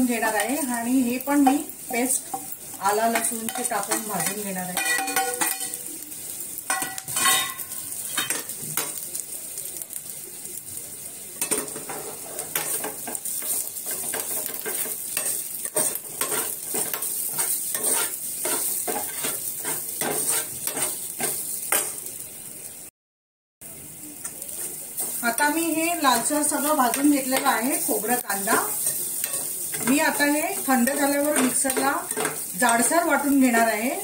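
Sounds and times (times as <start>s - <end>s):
food sizzling in a pan: 0.0s - 22.9s, 23.6s - 34.0s
spatula scraping a pan: 6.7s - 9.0s, 11.4s - 22.0s, 26.2s - 33.8s.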